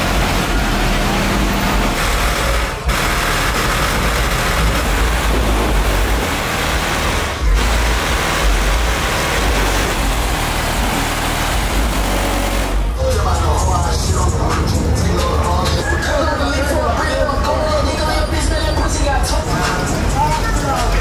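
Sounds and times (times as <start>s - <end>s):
music with heavy bass: 0.0s - 21.0s
street traffic: 0.0s - 21.0s.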